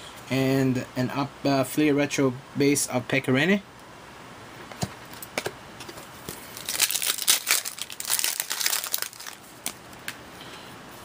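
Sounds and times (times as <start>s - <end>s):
foil wrapper crinkling: 6.4s - 10.2s.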